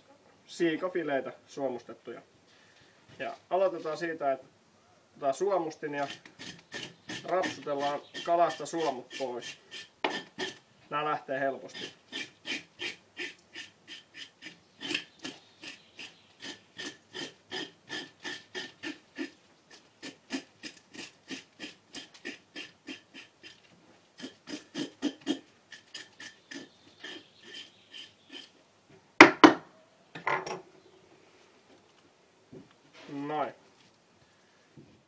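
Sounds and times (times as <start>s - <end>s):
fish scaler scraping scales: 5.8s - 10.6s, 11.7s - 28.6s.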